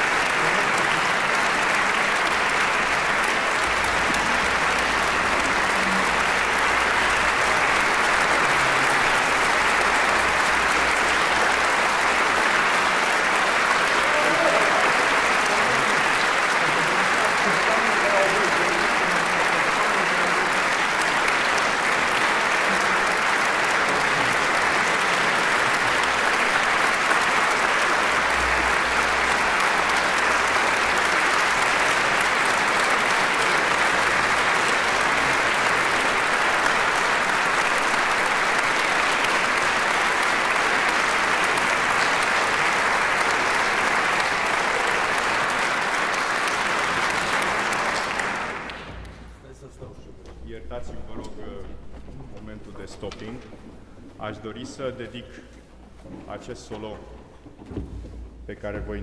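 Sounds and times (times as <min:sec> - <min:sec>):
audience applauding: 0:00.0 - 0:49.5.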